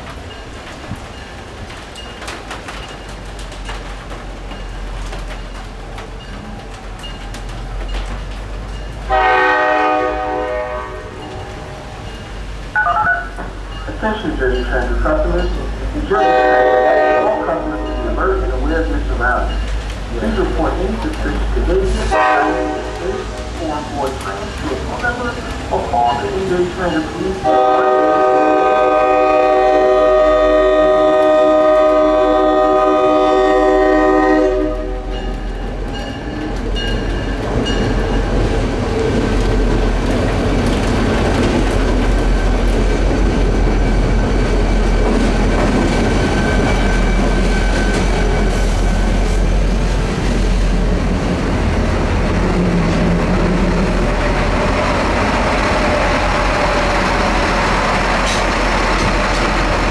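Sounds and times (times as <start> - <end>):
train wheels clicking over rail joints: 0.0 - 9.2, 35.1 - 50.8, 51.6 - 59.9
locomotive engine rumble: 0.0 - 59.9
locomotive air horn: 9.1 - 11.9, 16.1 - 18.0, 22.1 - 23.2, 27.4 - 35.1.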